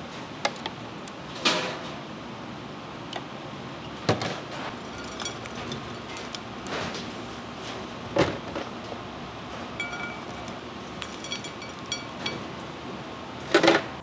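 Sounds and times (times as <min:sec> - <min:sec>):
room noise: 0:00.0 - 0:14.0
utensils and containers clinking: 0:04.7 - 0:07.8, 0:09.8 - 0:12.7.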